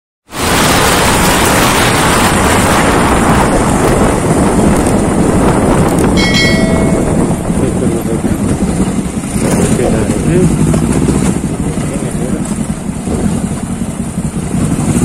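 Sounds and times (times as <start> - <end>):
motorcycle engine and road noise: 0.3 - 15.0
wind rushing over microphone: 0.3 - 15.0
short ringing tone: 6.2 - 7.8.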